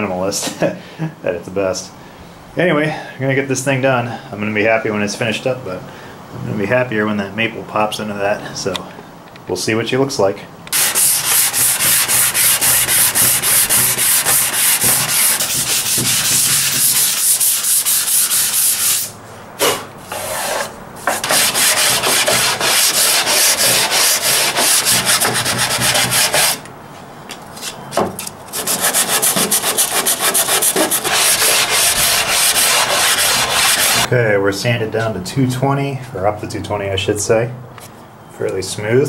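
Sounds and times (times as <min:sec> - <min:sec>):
sandpaper rubbing on wood: 0:10.8 - 0:26.6, 0:28.5 - 0:34.1.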